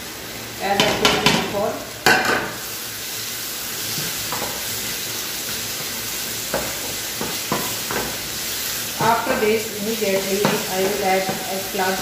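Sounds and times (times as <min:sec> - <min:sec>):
sauce sizzling in a frying pan: 0:00.0 - 0:12.0
spatula knocking against pan: 0:00.8 - 0:01.4, 0:06.5 - 0:08.2, 0:10.2 - 0:11.5.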